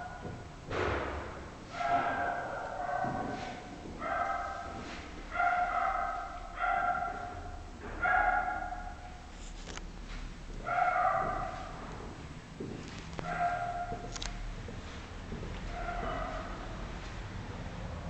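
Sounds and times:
dog barking: 0.0s - 0.4s, 1.7s - 9.3s, 10.6s - 12.0s, 13.2s - 14.1s, 15.6s - 16.9s.

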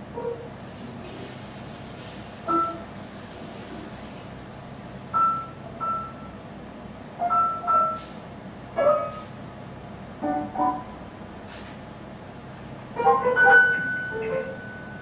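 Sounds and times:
steady low hum: 0.0s - 15.0s
sparse piano notes: 13.0s - 15.0s.

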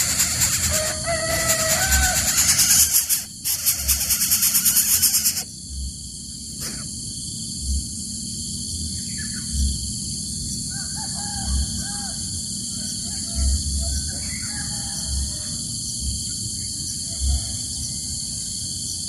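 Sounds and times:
nestlings harsh rasping call: 0.0s - 5.5s
high-pitched insect drone: 0.0s - 19.0s.

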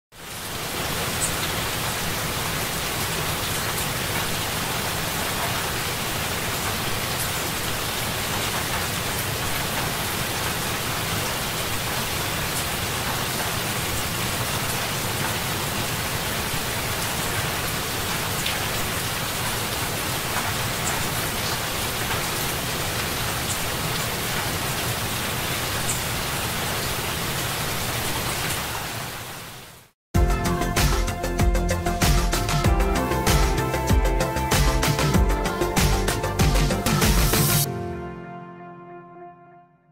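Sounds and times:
heavy rain falling: 0.1s - 29.9s.

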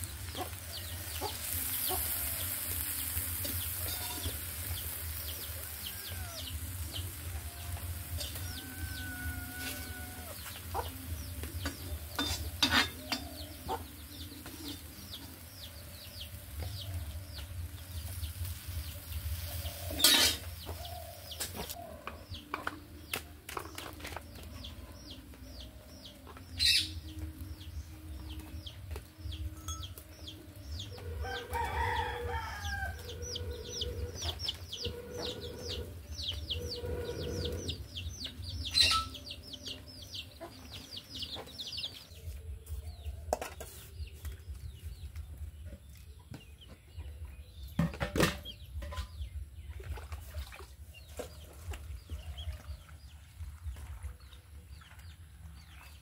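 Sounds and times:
fish frying in oil: 0.0s - 9.6s
chickens clucking: 0.0s - 27.2s, 28.2s - 42.2s.

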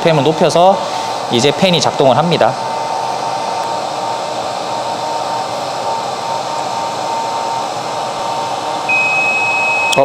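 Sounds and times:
hair dryer blowing: 0.3s - 10.0s
high-pitched alarm beep: 8.9s - 10.0s.

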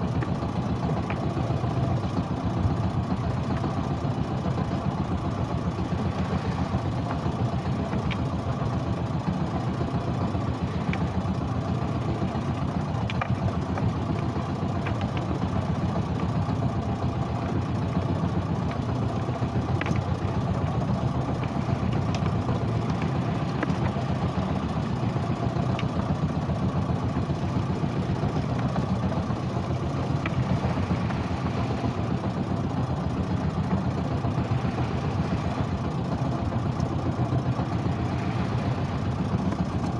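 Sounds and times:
boat engine running: 0.0s - 39.9s
faint clicks: 7.8s - 8.3s, 10.8s - 11.1s, 13.0s - 15.4s, 19.7s - 20.2s.

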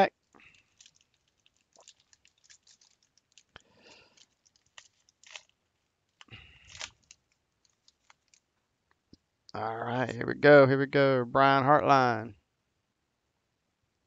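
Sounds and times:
wrapper crinkling and tearing: 0.2s - 8.6s.

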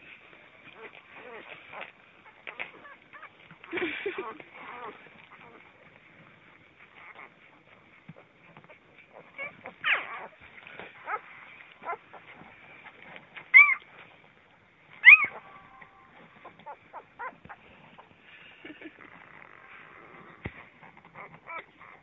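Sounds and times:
puppies squeaking and whimpering: 0.7s - 14.2s, 14.9s - 18.1s, 18.9s - 22.0s
puppies grunting: 0.7s - 22.0s
puppies high squeals: 13.5s - 13.8s, 15.0s - 17.6s.

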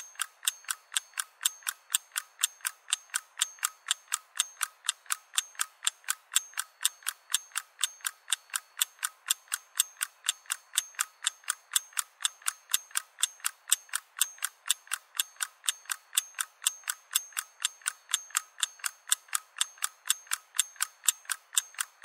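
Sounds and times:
clock ticking clicks: 0.0s - 22.0s.

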